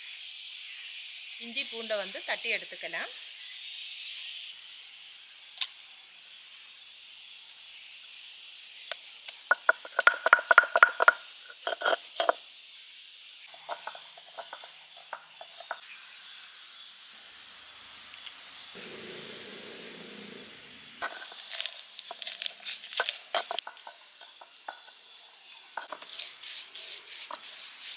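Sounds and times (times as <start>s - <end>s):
stone roller knocking on grinding slab: 9.5s - 12.4s, 13.6s - 15.8s, 21.0s - 27.9s.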